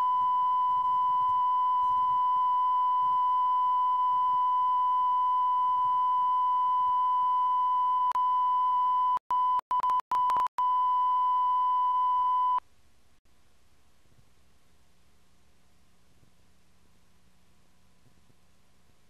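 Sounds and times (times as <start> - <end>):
click: 9.7 - 10.5
faint tape hiss: 12.6 - 19.0.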